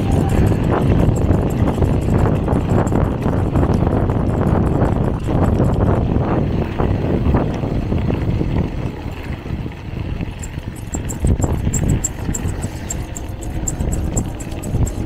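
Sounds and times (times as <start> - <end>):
light fast ticking: 0.0 - 6.0, 10.2 - 15.0
bike rumbling and rattling: 0.0 - 15.0.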